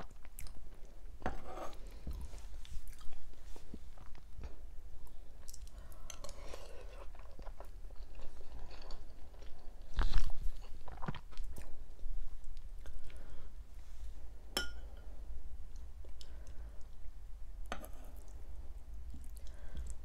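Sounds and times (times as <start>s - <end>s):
person chewing: 0.0s - 0.9s, 2.7s - 3.3s, 5.4s - 11.8s
metal spoon clinking on glass bowl: 14.6s - 15.0s.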